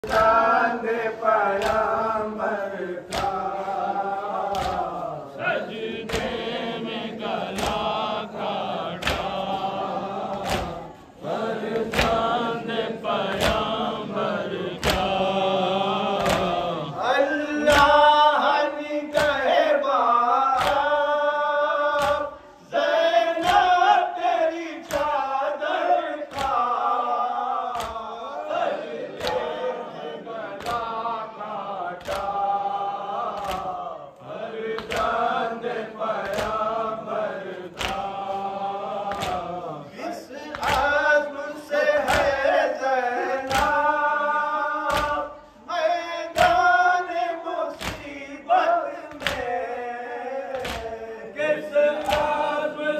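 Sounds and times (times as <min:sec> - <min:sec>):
hands slapping chests: 0:00.0 - 0:17.0, 0:17.6 - 0:18.0, 0:19.1 - 0:19.6, 0:20.5 - 0:21.1, 0:21.9 - 0:22.4, 0:23.4 - 0:23.8, 0:24.8 - 0:25.2, 0:26.2 - 0:27.1, 0:27.7 - 0:28.1, 0:29.1 - 0:29.6, 0:30.4 - 0:31.0, 0:32.0 - 0:32.6, 0:33.2 - 0:39.8, 0:40.4 - 0:41.2, 0:41.9 - 0:42.6, 0:43.2 - 0:44.2, 0:44.8 - 0:45.5, 0:46.3 - 0:46.8, 0:47.7 - 0:48.2, 0:49.1 - 0:49.7, 0:50.5 - 0:51.1, 0:51.9 - 0:52.6
men chanting a lament: 0:00.0 - 0:52.9.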